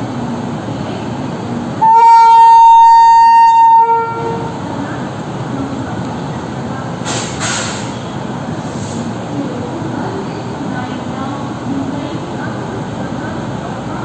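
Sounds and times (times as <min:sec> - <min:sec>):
station rumble: 0:00.0 - 0:14.0
locomotive horn blast: 0:01.8 - 0:04.6.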